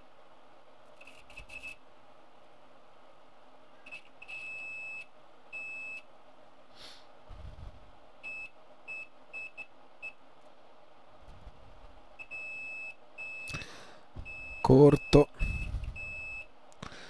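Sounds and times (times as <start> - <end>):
multimeter continuity beeps: 3.9 - 6.0, 8.2 - 10.2, 12.2 - 13.6, 14.2 - 16.5.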